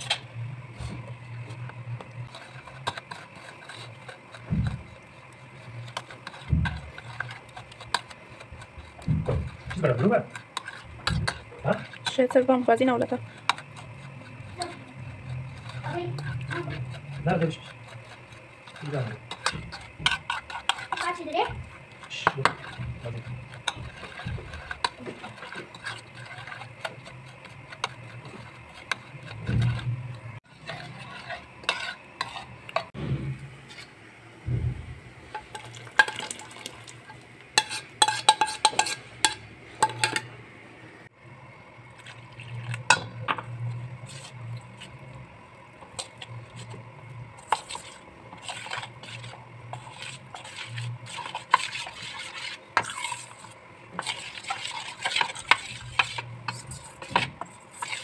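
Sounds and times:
low hum: 0:32.7 - 0:35.6
metal spoon clinking against bowls: 0:37.6 - 0:40.3.

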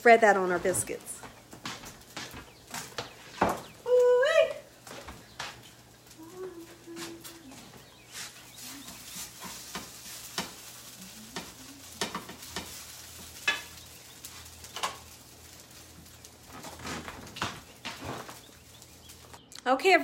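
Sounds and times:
food sizzling in a frying pan: 0:02.5 - 0:19.4
metal utensil scraping a pan: 0:08.1 - 0:13.8.

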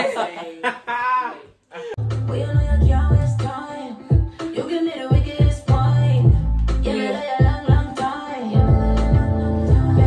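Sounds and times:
music with heavy sliding bass: 0:02.0 - 0:04.3, 0:05.1 - 0:10.0.

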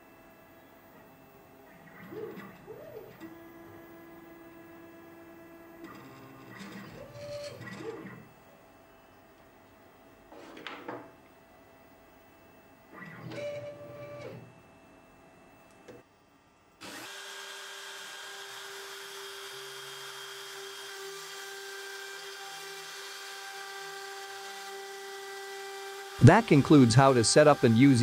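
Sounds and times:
stepper motors whining: 0:00.9 - 0:08.4, 0:16.8 - 0:28.0
router spindle cutting wood: 0:16.8 - 0:28.0.

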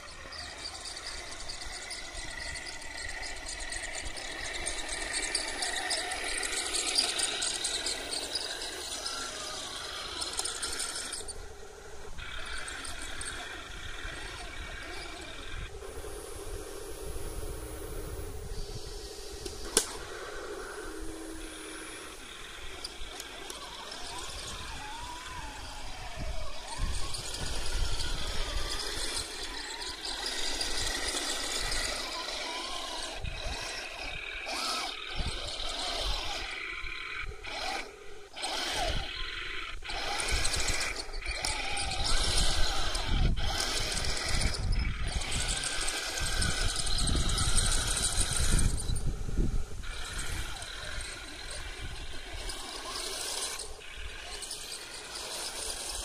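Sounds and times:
electric motor whine: 0:00.0 - 0:56.0
toy tank tracks running: 0:00.0 - 0:56.0.

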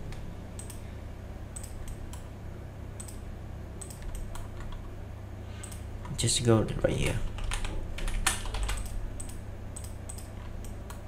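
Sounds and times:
steady low hum: 0:00.0 - 0:11.0
computer mouse clicking: 0:00.1 - 0:00.8, 0:01.6 - 0:02.3, 0:03.0 - 0:03.2, 0:03.8 - 0:04.9, 0:07.4 - 0:11.0.

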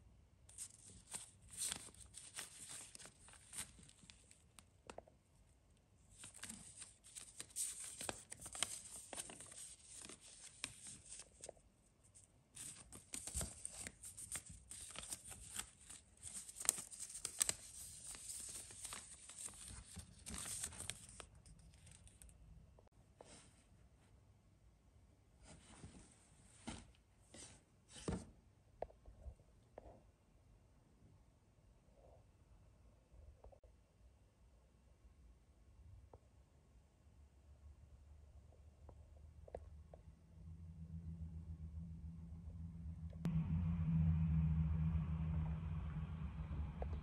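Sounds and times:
fabric and packaging rustling: 0:00.5 - 0:04.6, 0:06.1 - 0:11.5.

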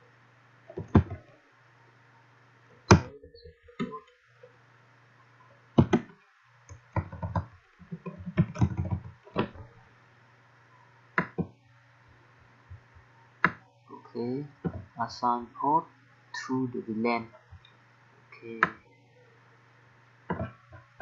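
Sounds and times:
faint low hum: 0:00.0 - 0:21.0
keyboard keys clicking: 0:06.7 - 0:09.7.

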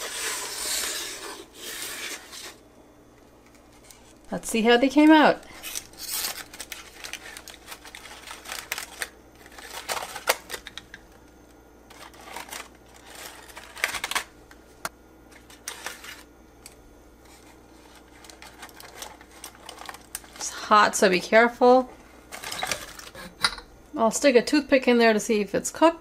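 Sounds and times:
aluminium foil crinkling: 0:03.3 - 0:11.2, 0:11.9 - 0:14.4, 0:15.3 - 0:21.2, 0:22.0 - 0:23.3.

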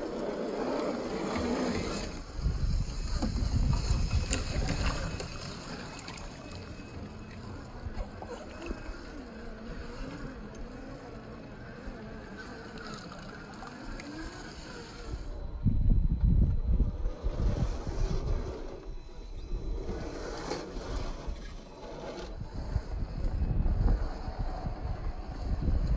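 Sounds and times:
electric motor whine: 0:00.0 - 0:25.9
wind buffeting microphone: 0:01.0 - 0:12.6, 0:13.5 - 0:25.9
running stream water: 0:03.2 - 0:15.4.

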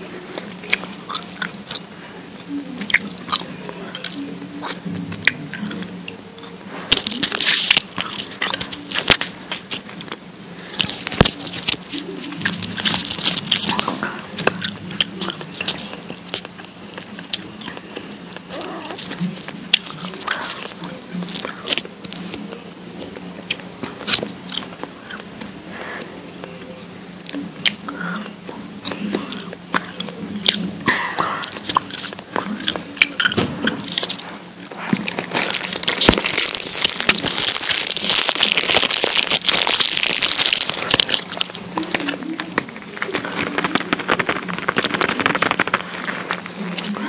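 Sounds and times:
gum chewing clicks and smacks: 0:00.3 - 0:01.9, 0:02.8 - 0:25.6, 0:31.2 - 0:47.0
dense crackling rustle: 0:06.7 - 0:14.4, 0:33.8 - 0:47.0.

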